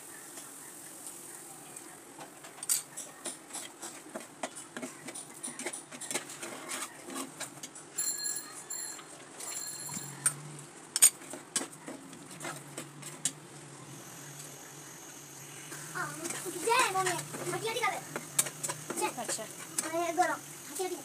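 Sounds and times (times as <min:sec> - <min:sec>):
spatula scraping a pan: 0:03.4 - 0:07.6, 0:11.1 - 0:13.3.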